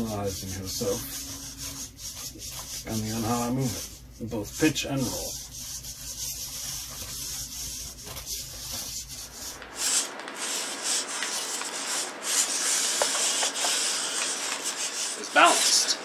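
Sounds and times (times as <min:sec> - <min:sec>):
rasping hiss: 0:09.0 - 0:16.0.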